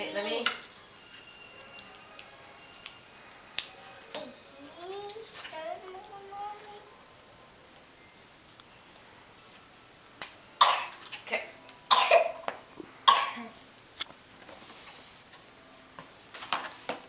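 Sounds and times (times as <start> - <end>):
person coughing: 11.9 - 12.4, 13.1 - 13.5.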